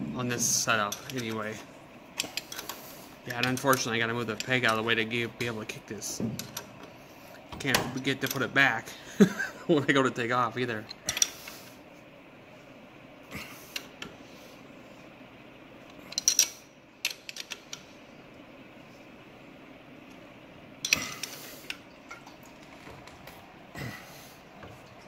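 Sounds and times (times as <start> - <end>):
low background hum: 0.0 - 25.0
metal tools clinking: 16.1 - 17.6.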